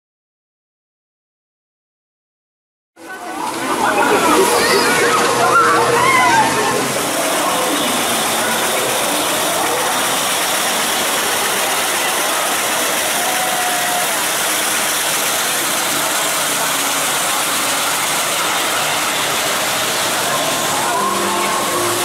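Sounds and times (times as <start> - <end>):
coaster car rolling on track: 3.0 - 22.0.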